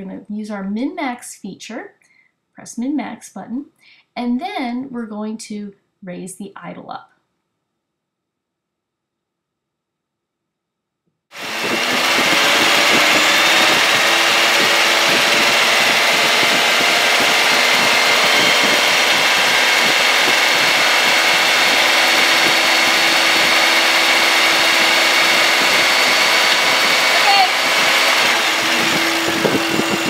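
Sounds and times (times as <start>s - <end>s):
car engine running: 11.4s - 30.0s.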